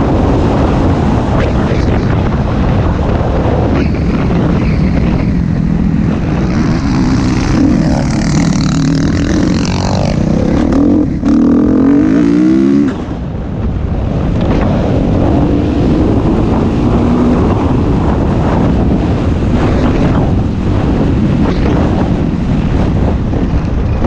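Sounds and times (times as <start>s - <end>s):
wind noise on microphone: 0.0s - 24.0s
dirt bike engine revving: 4.2s - 13.2s.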